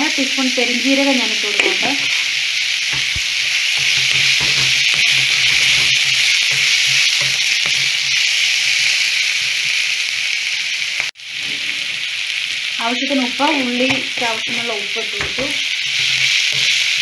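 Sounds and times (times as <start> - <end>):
onions sizzling in hot oil: 0.0 - 17.0
wooden spatula scraping and tapping: 2.9 - 9.8, 15.2 - 17.0.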